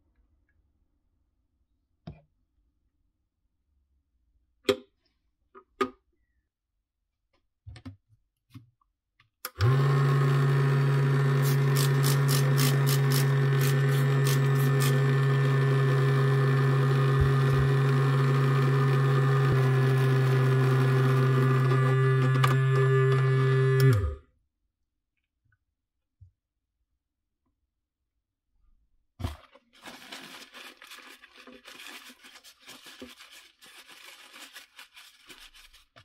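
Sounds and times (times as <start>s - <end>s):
vibration motor buzzing: 9.6s - 24.2s.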